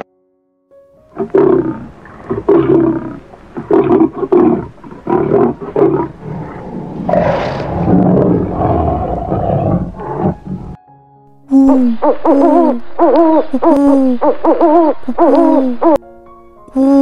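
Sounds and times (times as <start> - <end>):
big cat roaring: 1.1 - 10.8.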